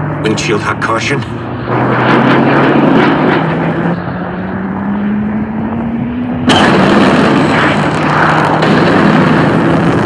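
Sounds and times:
harsh rushing roar: 0.0 - 10.0
jet rumble with rising tone: 0.0 - 10.0
sharp bang: 6.4 - 10.0.

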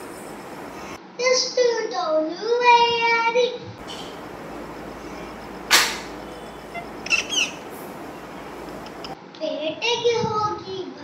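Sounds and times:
low hiss: 0.0 - 1.0, 3.8 - 9.2
quick high chirps: 3.8 - 9.2
short hissing burst: 3.8 - 9.2.

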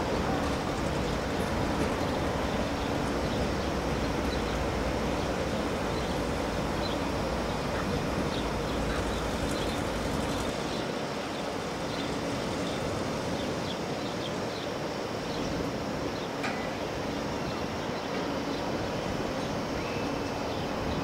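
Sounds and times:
train rumbling: 0.0 - 21.0
small birds chirping: 0.4 - 16.5.

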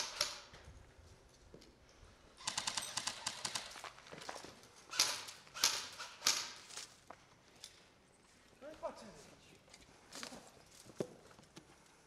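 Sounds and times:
airsoft rifle full-auto burst: 2.4 - 3.7, 4.9 - 6.6.

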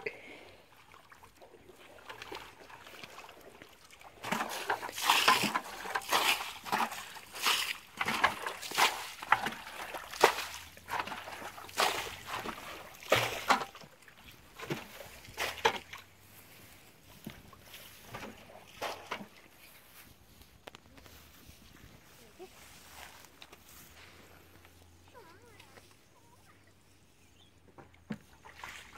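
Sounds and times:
bucket splashing muddy water: 0.0 - 19.7, 27.8 - 28.9.

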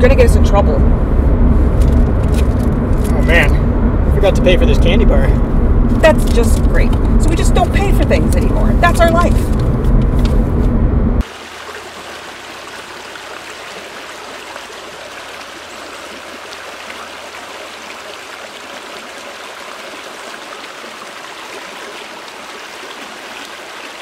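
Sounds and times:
stream water rushing: 11.2 - 24.0.

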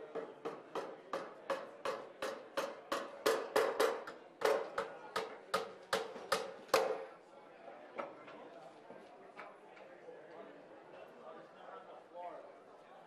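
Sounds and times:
hammering nails: 0.2 - 7.0.

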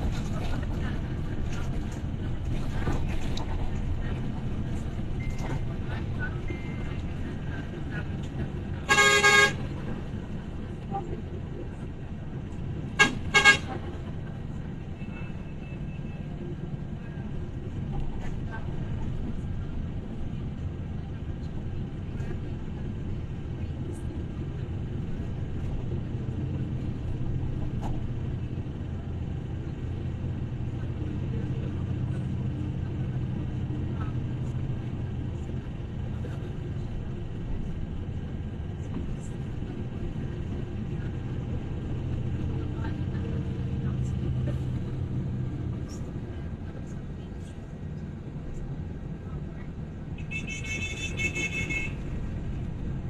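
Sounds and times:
road traffic rumble: 0.0 - 53.0
vehicle horn honking: 8.9 - 9.7, 13.0 - 13.7, 50.2 - 52.0.

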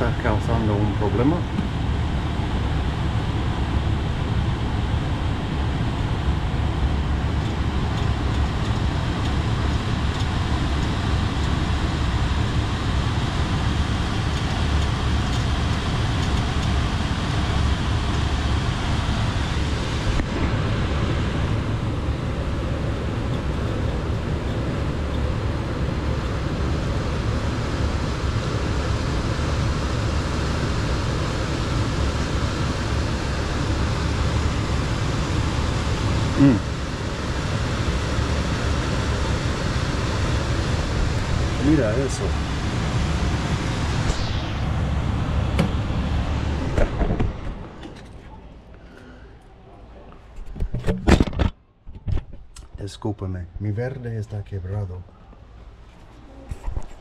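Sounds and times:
air conditioner humming: 0.0 - 51.2.

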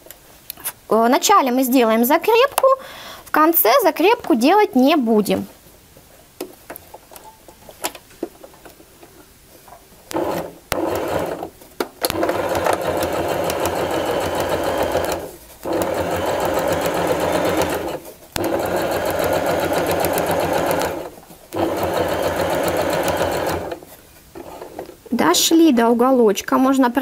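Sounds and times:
electric sewing machine stitching: 10.1 - 23.8.

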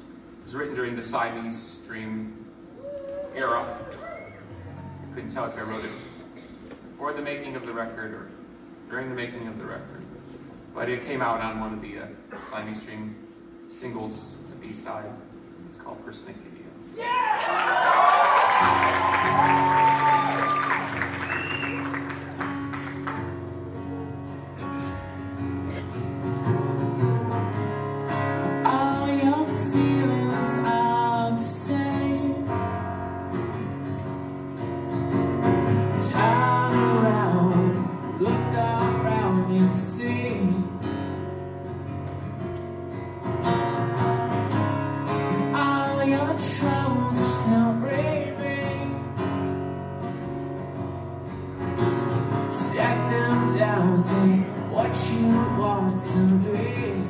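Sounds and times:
guitar strummed and picked: 21.8 - 57.0
man singing: 28.5 - 32.7, 35.8 - 40.9, 45.3 - 49.2, 52.4 - 57.0.

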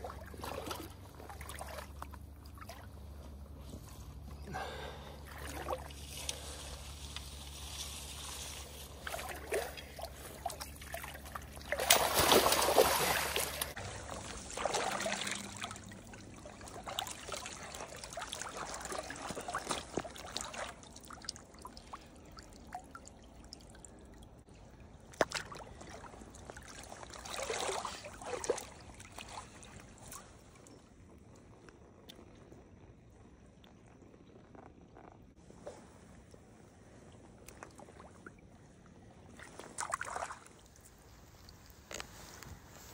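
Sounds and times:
river water splashing: 0.0 - 3.0, 5.2 - 21.9, 25.0 - 30.6, 39.3 - 40.8.

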